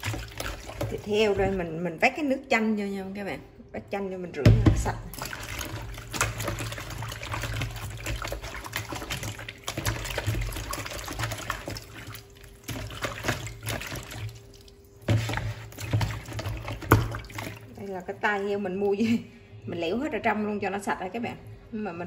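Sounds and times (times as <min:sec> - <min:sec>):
water sloshing in plastic basin: 0:00.0 - 0:02.2, 0:04.5 - 0:19.2
hands scrubbing meat: 0:05.2 - 0:17.7.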